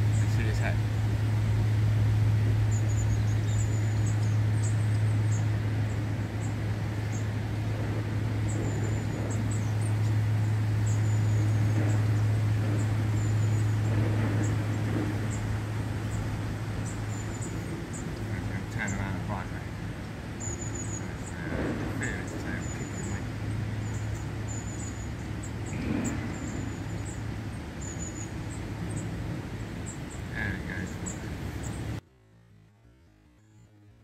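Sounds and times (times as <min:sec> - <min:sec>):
small birds chirping: 0:00.0 - 0:32.0
steady low hum: 0:00.0 - 0:34.0.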